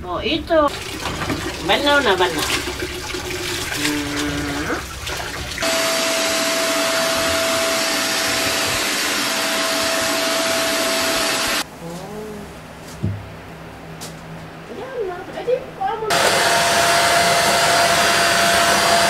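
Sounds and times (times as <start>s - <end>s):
handheld vacuum cleaner running: 5.6s - 11.6s, 16.1s - 19.0s.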